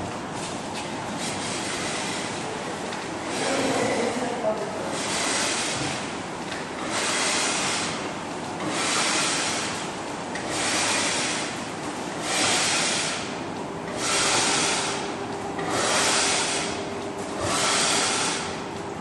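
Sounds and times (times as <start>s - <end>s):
pigment scraping rasp: 15.7s - 16.7s.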